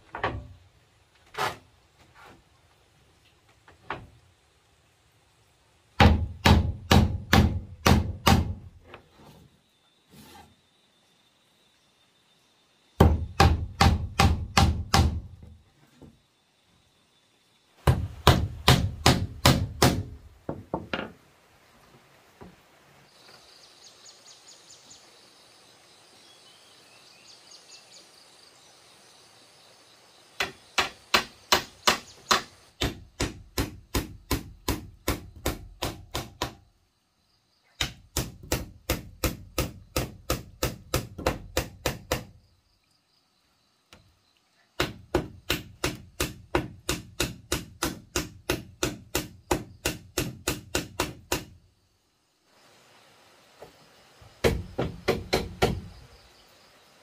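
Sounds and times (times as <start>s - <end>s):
hammer driving nails into wood: 6.0s - 8.7s, 13.0s - 15.3s, 17.8s - 21.1s, 30.4s - 36.6s, 37.8s - 42.3s, 44.8s - 51.6s, 54.4s - 55.9s.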